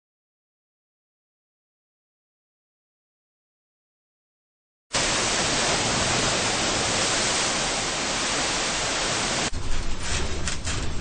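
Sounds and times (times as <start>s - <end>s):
storm wind and spray hissing: 5.0s - 11.0s.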